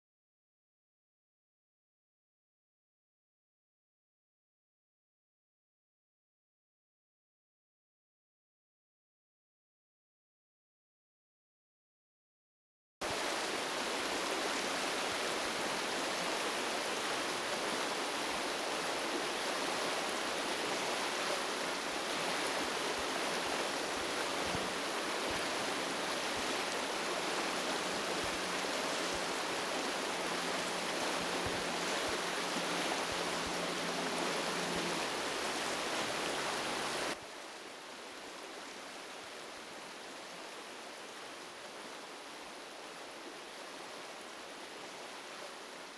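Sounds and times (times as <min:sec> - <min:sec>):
steady rushing noise: 0:13.0 - 0:37.2.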